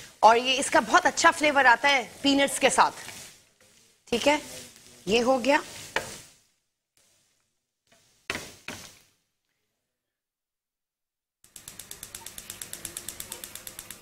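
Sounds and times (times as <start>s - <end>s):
spatula scraping in a frying pan: 0.8s - 9.1s
fast even clicking: 11.5s - 14.0s.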